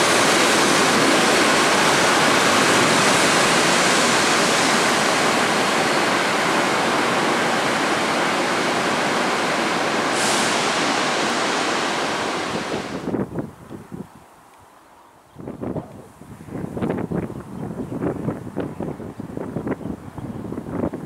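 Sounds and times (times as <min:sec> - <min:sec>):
train rushing out of station: 0:00.0 - 0:13.2
short high hiss: 0:10.0 - 0:13.1.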